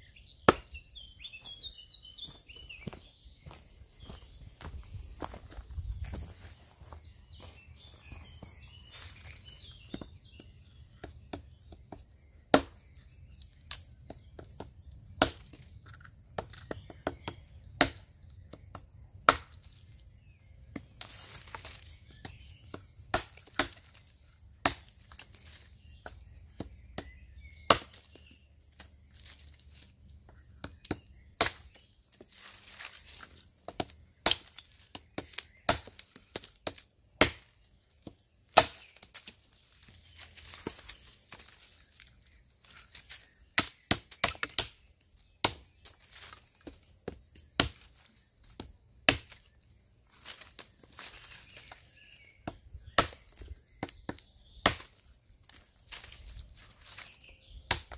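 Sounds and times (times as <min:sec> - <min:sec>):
insects buzzing: 0:00.0 - 0:57.9
hatchet chopping branches: 0:00.5 - 0:00.8, 0:12.5 - 0:12.8, 0:15.2 - 0:18.0, 0:19.3 - 0:19.6, 0:20.8 - 0:24.0, 0:24.6 - 0:25.6, 0:27.0 - 0:28.2, 0:30.6 - 0:37.5, 0:38.5 - 0:39.3, 0:43.0 - 0:44.8, 0:45.4 - 0:47.9, 0:48.5 - 0:49.4, 0:52.4 - 0:56.1, 0:57.7 - 0:57.9.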